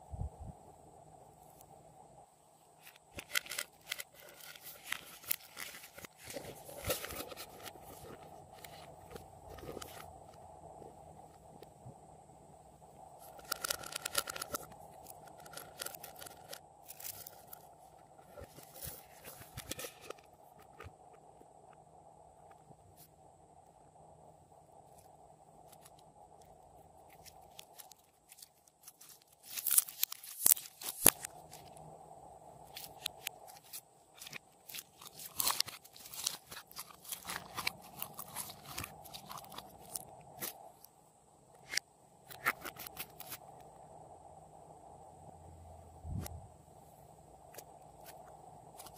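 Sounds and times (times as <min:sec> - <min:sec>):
plastic container crackling: 0:32.8 - 0:40.0.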